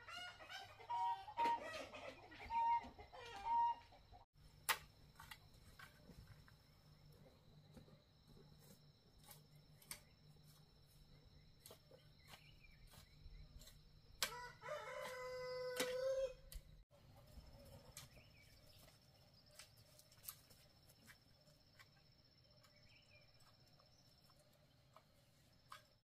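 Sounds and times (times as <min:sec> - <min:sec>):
rooster crowing: 0:14.3 - 0:16.5.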